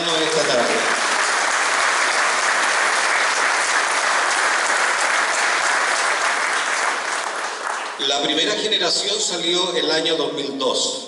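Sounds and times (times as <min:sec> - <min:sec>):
crowd applauding: 0:00.0 - 0:08.7.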